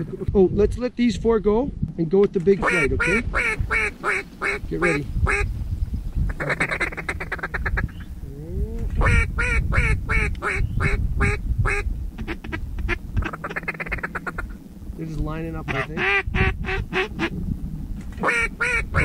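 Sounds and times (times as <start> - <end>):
low wind rumble: 0.0 - 19.0
duck quacking: 2.6 - 5.5, 6.3 - 7.9, 9.0 - 14.6, 15.6 - 17.4, 18.2 - 19.0
fast chattering calls: 2.6 - 5.6, 6.2 - 8.2, 9.0 - 14.6, 15.6 - 17.4.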